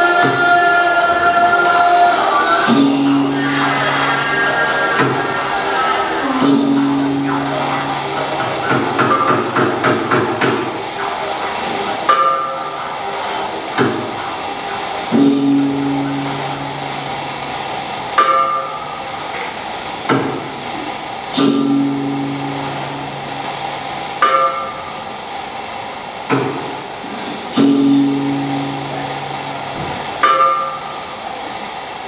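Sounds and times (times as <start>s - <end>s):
small gong ringing: 2.7s - 5.4s, 6.2s - 9.5s, 15.1s - 17.6s, 21.3s - 25.0s, 27.6s - 31.1s
deep gong strikes: 6.4s - 9.5s, 15.1s - 17.5s, 21.4s - 23.6s, 27.6s - 31.0s.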